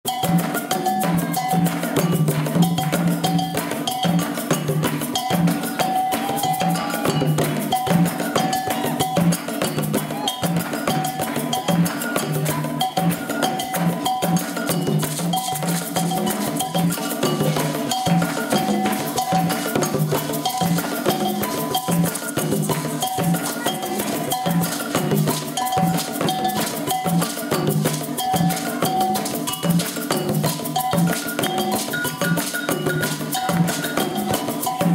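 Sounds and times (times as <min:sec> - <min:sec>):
conga drums played by hand: 0:00.0 - 0:34.9
metal bell ringing: 0:00.1 - 0:34.9.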